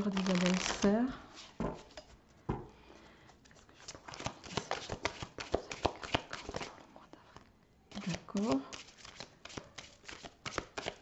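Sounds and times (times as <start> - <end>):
cards being shuffled: 0.0 - 2.1, 3.5 - 6.8, 7.9 - 11.0.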